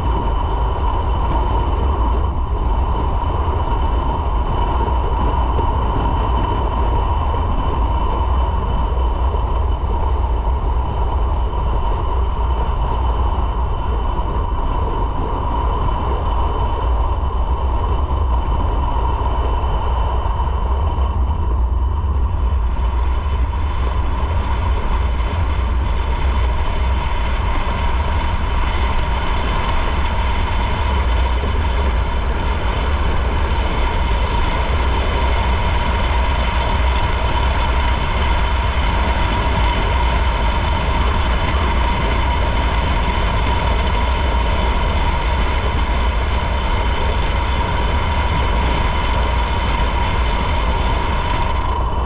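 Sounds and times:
motorcycle engine drone: 0.0s - 52.0s
wind rumble on microphone: 0.0s - 52.0s.

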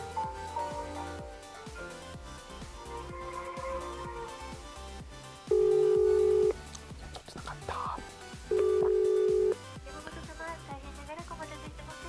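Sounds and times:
background music: 0.0s - 12.0s
telephone ringback tone: 5.5s - 6.6s, 8.5s - 9.6s.

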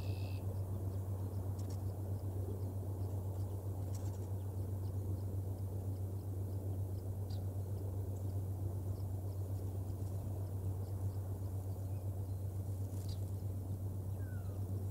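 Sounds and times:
outdoor hum and rumble: 0.0s - 14.9s.

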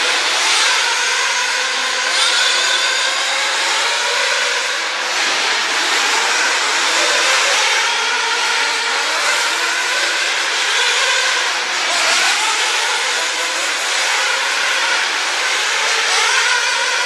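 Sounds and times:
rc car motors whining: 0.0s - 17.0s.

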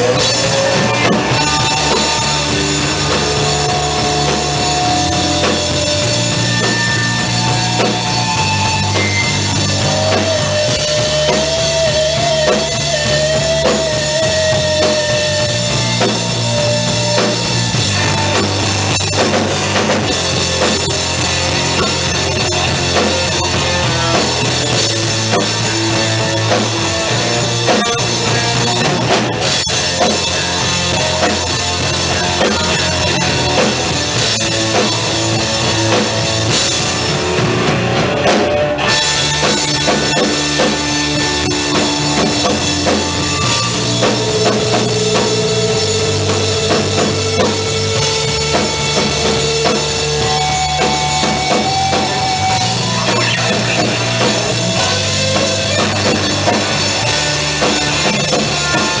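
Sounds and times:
rock band playing live: 0.0s - 59.0s.

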